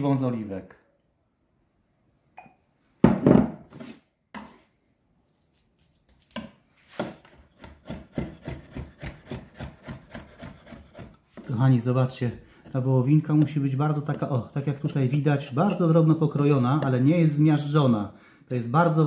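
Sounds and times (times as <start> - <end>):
knife chopping meat: 6.3 - 11.6.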